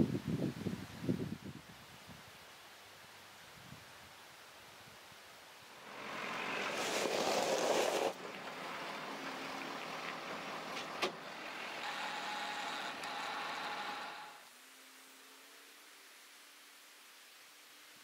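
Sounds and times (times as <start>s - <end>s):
pickup truck running: 5.8s - 14.4s.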